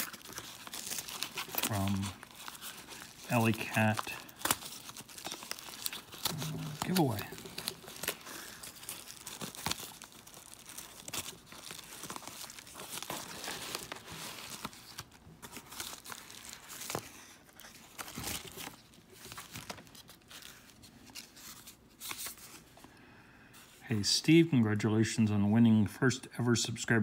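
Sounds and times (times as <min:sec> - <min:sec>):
paper envelope tearing: 0:00.0 - 0:22.6.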